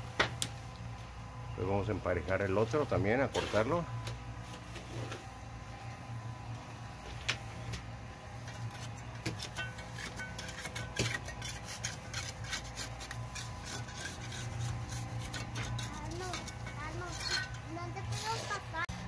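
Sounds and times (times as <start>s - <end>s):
steady low hum: 0.0s - 19.0s
trowel scraping and clicking: 8.4s - 18.6s.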